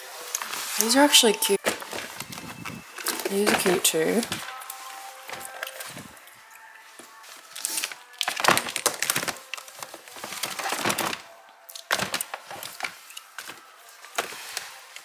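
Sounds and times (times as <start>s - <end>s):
shoes clattering in plastic tub: 0.7s - 4.5s.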